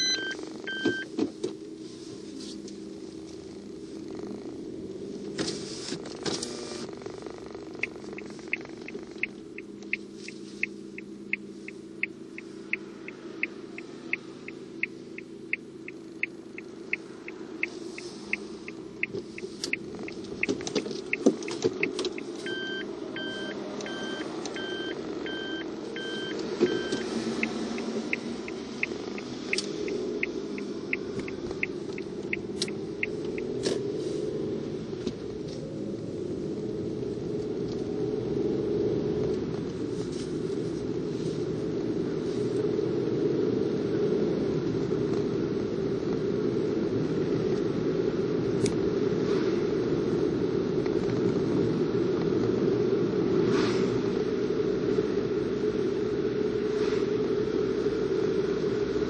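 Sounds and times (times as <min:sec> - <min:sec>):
electronic two-tone beeps: 0:00.0 - 0:01.1, 0:22.4 - 0:27.5
turn signal ticking: 0:00.0 - 0:01.8, 0:02.5 - 0:49.0
car engine and road noise: 0:00.0 - 0:59.0.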